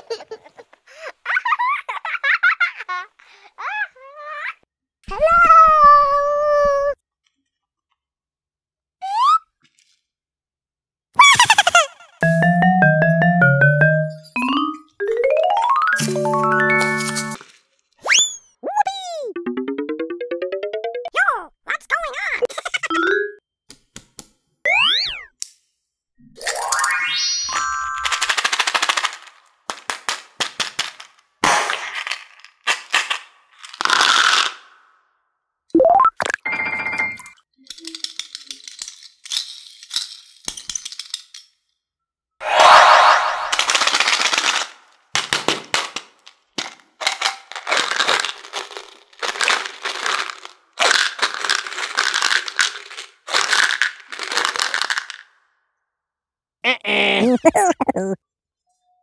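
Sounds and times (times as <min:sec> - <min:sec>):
candies pouring rattle: 0:15.6 - 0:17.6, 0:28.0 - 0:34.7, 0:37.6 - 0:41.4, 0:43.5 - 0:55.3
candies clattering on plastic: 0:28.0 - 0:34.7, 0:37.6 - 0:41.6, 0:43.6 - 0:55.3.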